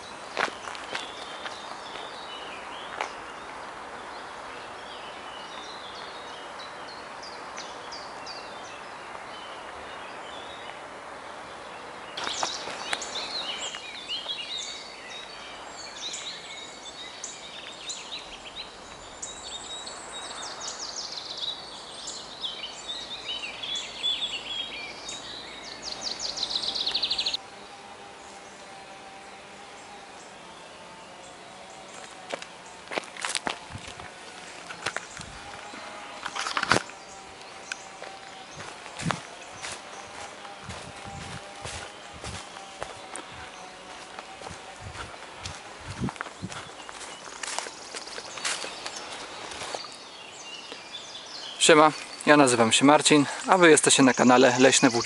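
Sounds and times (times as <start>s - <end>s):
footstep on dirt path: 0.0s - 3.7s, 12.2s - 14.7s, 31.8s - 51.0s
songbirds calling: 0.0s - 55.0s
wind in leaves: 0.0s - 55.0s.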